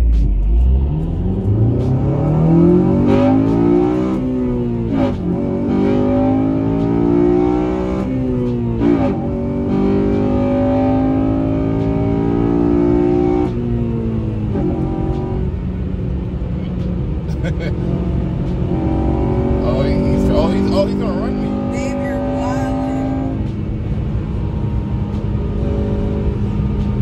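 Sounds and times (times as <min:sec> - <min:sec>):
car engine accelerating: 0:00.0 - 0:27.0.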